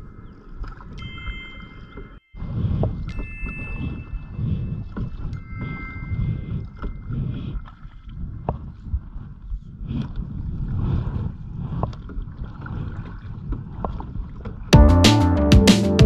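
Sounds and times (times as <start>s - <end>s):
wind rumbling on microphone: 0.0s - 14.8s
paddle splashing through water: 6.7s - 14.7s.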